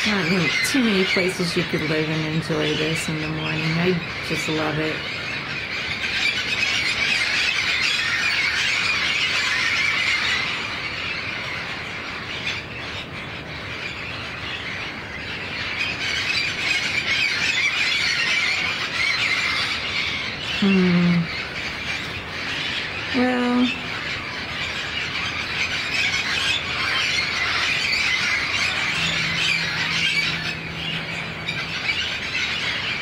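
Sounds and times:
parrots screeching and chattering: 0.0 - 33.0
person murmuring: 20.6 - 21.3.

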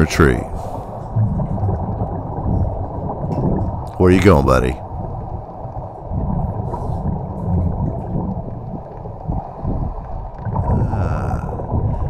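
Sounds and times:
low underwater rumble: 0.0 - 12.0.

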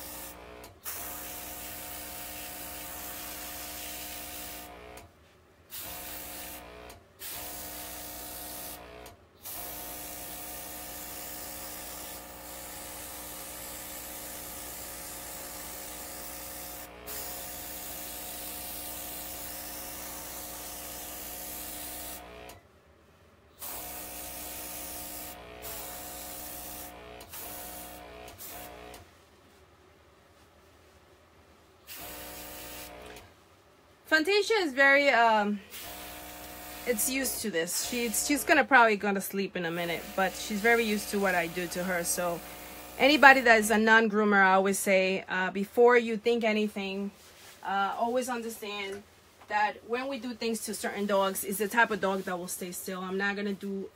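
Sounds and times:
airbrush spraying hiss: 0.0 - 4.7, 9.5 - 22.2, 23.6 - 28.8, 31.9 - 33.1, 35.7 - 38.5, 39.8 - 43.7
electric compressor hum: 0.0 - 5.1, 5.7 - 22.6, 23.6 - 29.0, 31.8 - 33.3, 34.1 - 43.9.

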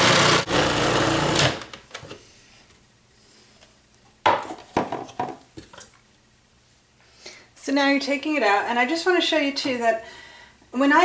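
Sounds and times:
food processor grating: 0.0 - 1.6.

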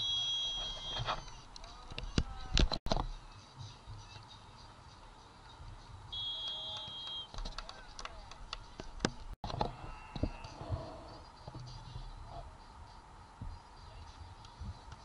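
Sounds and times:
referee's whistle: 0.0 - 1.2, 6.1 - 7.4.

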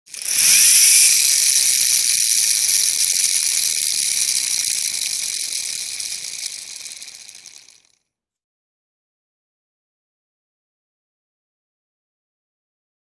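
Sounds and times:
wind-up toy whirring: 0.0 - 8.0.

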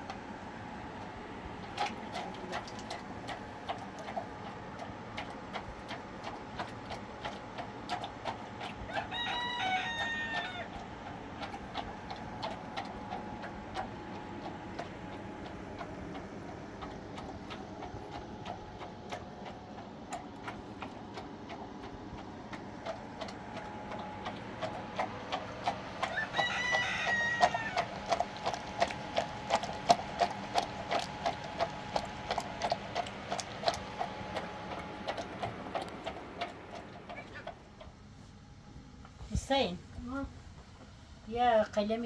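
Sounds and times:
rooster crowing: 8.9 - 10.8, 26.0 - 28.0.

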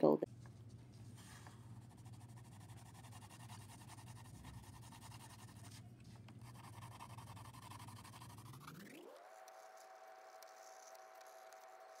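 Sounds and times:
low steady hum: 0.0 - 12.0
pencil scratching on paper: 1.3 - 5.8, 6.4 - 9.8.

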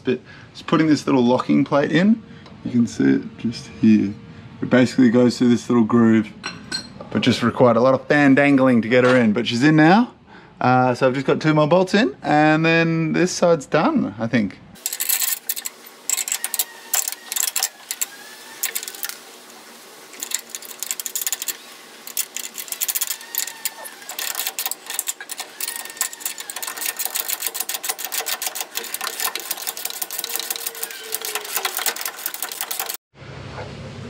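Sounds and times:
socket ratchet clicking: 14.8 - 19.2, 20.2 - 33.0.

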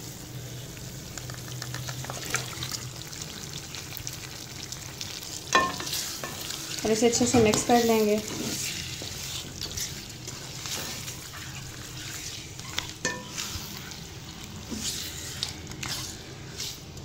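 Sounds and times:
food sizzling in pan: 0.0 - 17.0
spatula scraping and clicking on pan: 7.2 - 14.0, 14.6 - 17.0.

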